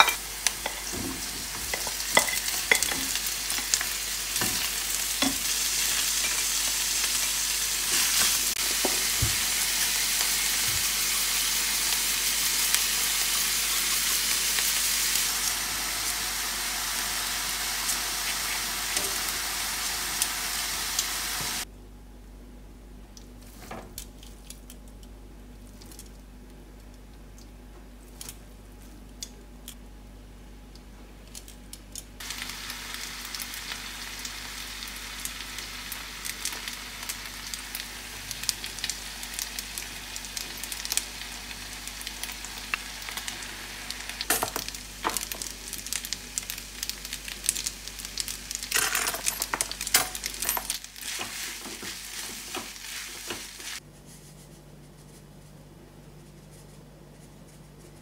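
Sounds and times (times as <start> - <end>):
food sizzling in a frying pan: 0.0 - 21.7, 32.2 - 53.8.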